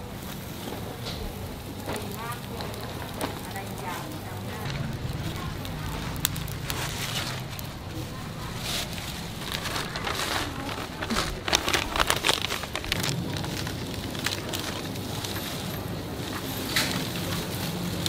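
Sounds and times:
charcoal grill crackling: 0.0s - 18.0s
steady low hum: 1.3s - 14.8s
paper crinkling: 1.8s - 18.0s.

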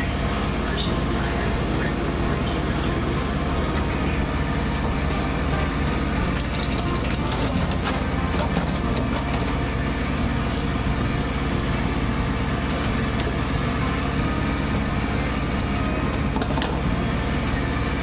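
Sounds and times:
boat engine drone: 0.0s - 18.0s.

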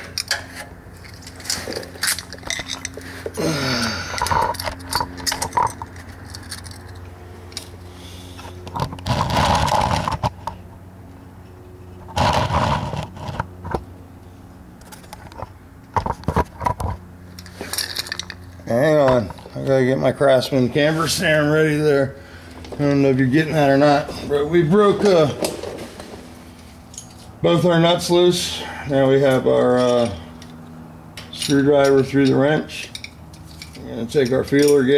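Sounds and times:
tools clicking and knocking: 0.0s - 3.4s, 4.1s - 7.7s, 31.2s - 34.8s
steady low hum: 0.0s - 34.9s
person grunting: 3.4s - 4.4s
rustling scrapes: 8.1s - 10.4s.

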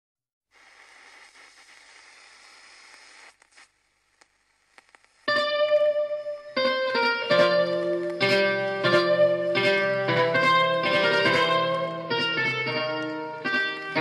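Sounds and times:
faint hiss: 0.5s - 9.7s
plucked guitar music: 5.3s - 14.0s.

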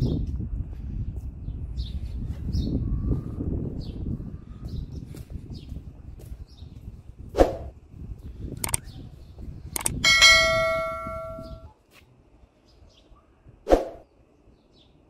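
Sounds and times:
sharp knocks: 9.8s - 11.6s
bell-like ring: 10.0s - 11.7s.

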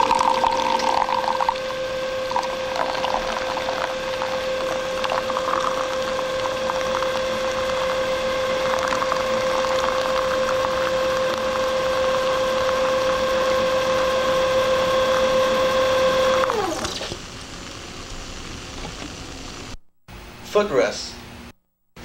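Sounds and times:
liquid pouring into a cup: 0.0s - 12.9s
steady hum: 0.0s - 22.0s
crackling: 2.3s - 12.9s.

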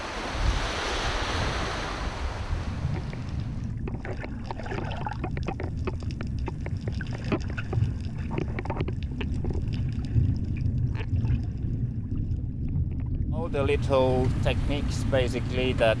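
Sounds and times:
muffled underwater rumble: 1.4s - 16.0s
underwater clicks and crackles: 2.7s - 14.4s.

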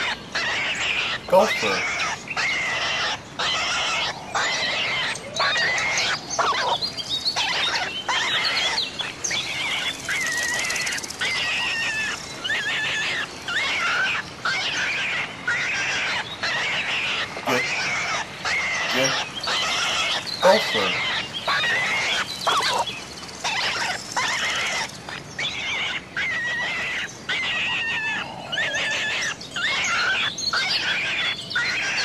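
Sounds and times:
gopher squeaky chattering: 0.0s - 6.8s, 15.5s - 24.9s.

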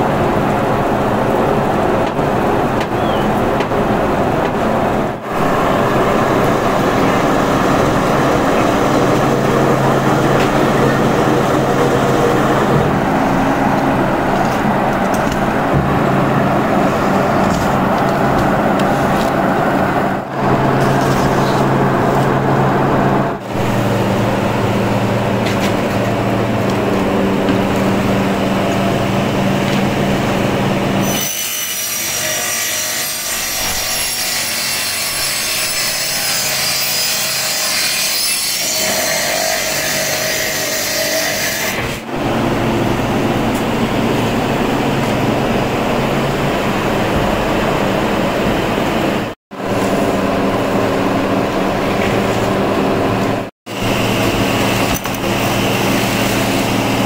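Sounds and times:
high-pitched saw whine: 5.2s - 14.9s, 53.3s - 57.0s.

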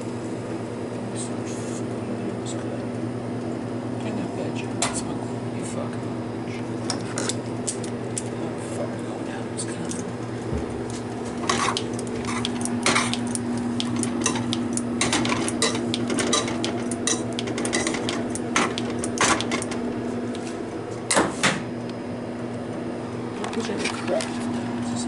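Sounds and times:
steady low hum: 0.0s - 25.0s
metal utensils clattering on pots: 14.2s - 19.6s.

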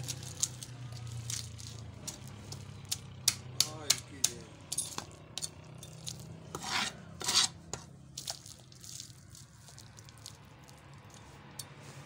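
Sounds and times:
knife scraping fish: 6.5s - 7.9s.

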